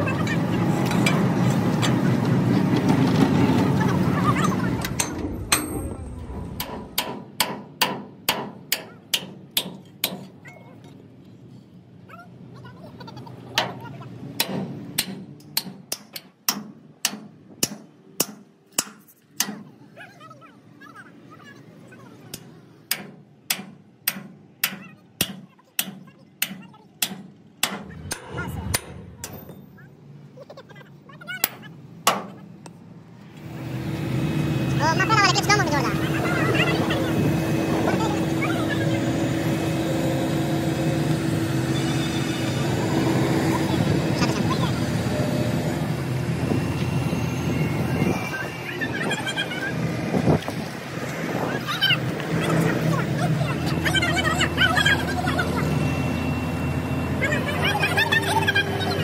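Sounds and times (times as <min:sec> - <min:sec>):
hammer striking: 0:04.9 - 0:10.4, 0:14.4 - 0:19.6, 0:22.4 - 0:29.6, 0:31.4 - 0:32.4
low rumble: 0:27.8 - 0:29.8.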